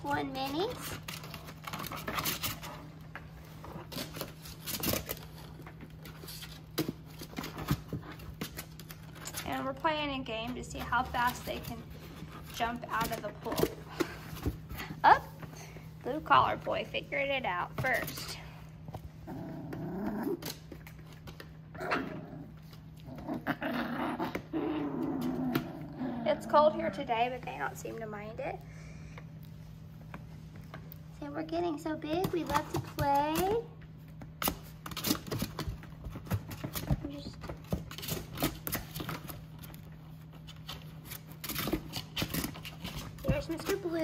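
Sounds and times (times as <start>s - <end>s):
puppies rustling and scratching: 0.0s - 23.6s, 24.2s - 44.0s
faint steady hum: 0.0s - 44.0s
puppies growling: 19.0s - 27.4s.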